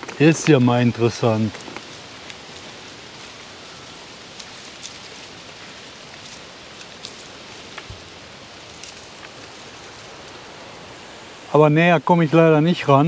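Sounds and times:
outdoor background hiss: 0:00.0 - 0:13.0
faint ticks: 0:01.4 - 0:10.6.

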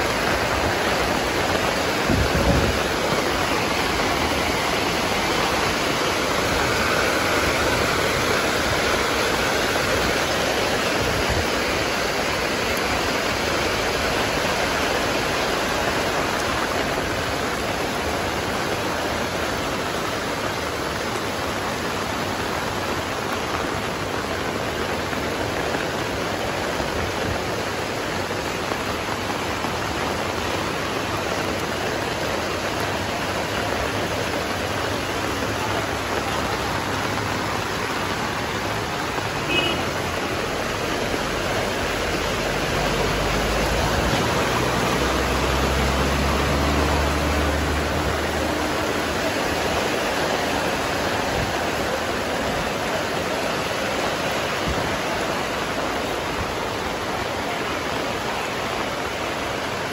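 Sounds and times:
heavy rain on a wet street: 0:00.0 - 0:59.9
vehicle engine hum: 0:36.4 - 0:51.8.

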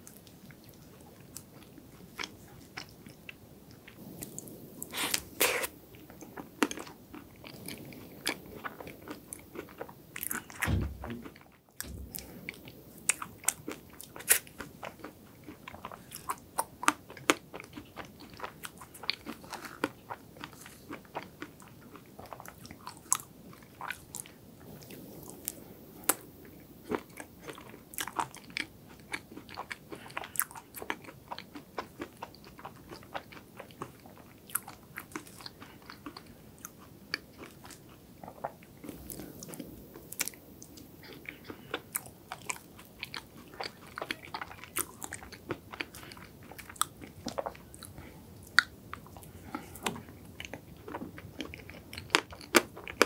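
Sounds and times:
crisp crunching and chewing: 0:11.2 - 0:53.0.

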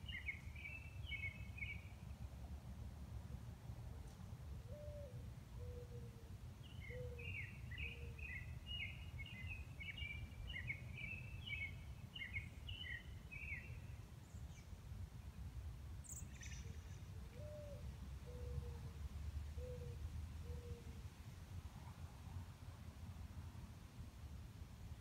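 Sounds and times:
songbird twittering: 0:00.0 - 0:02.0, 0:06.6 - 0:14.7, 0:16.0 - 0:18.6.

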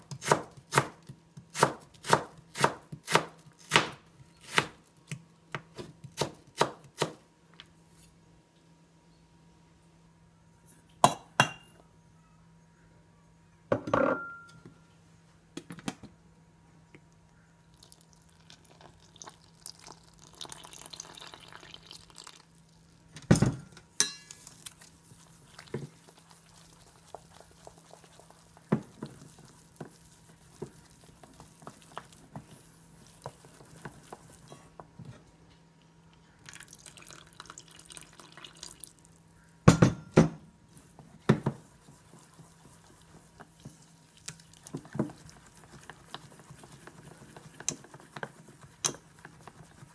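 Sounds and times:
water pouring from jug: 0:17.8 - 0:22.6, 0:36.4 - 0:39.0
chopsticks stirring and tapping bowl: 0:24.0 - 0:35.0, 0:41.0 - 0:49.9.

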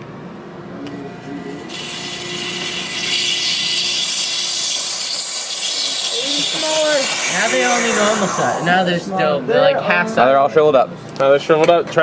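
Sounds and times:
air hissing into vacuum jar: 0:01.4 - 0:09.2.

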